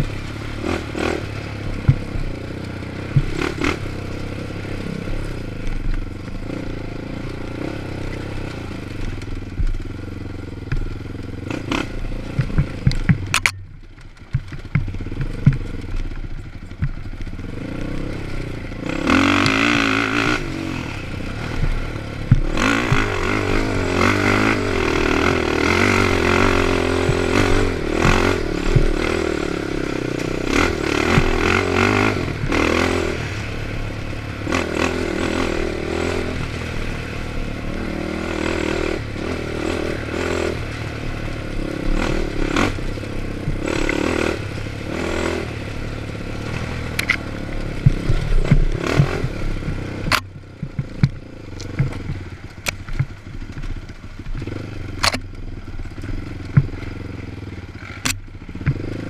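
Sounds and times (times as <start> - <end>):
atv engine racing: 0.0 - 59.0
vehicle knocking and clattering: 12.3 - 17.3, 47.8 - 55.3.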